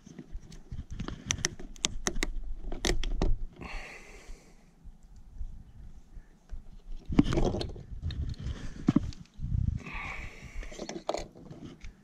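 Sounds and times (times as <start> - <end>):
wind rumble on microphone: 4.8 - 10.9.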